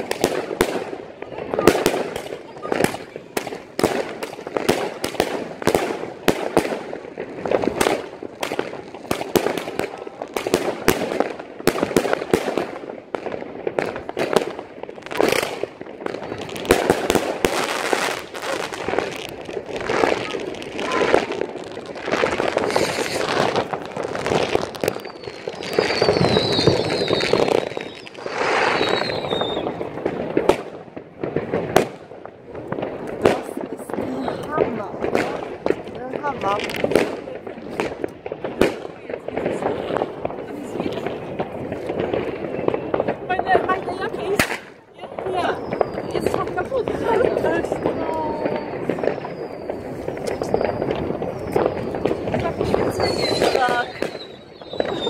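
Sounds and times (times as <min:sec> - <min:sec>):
fireworks banging and crackling: 0:00.0 - 0:55.0
high wavering firework whistle: 0:19.8 - 0:29.8, 0:44.5 - 0:55.0.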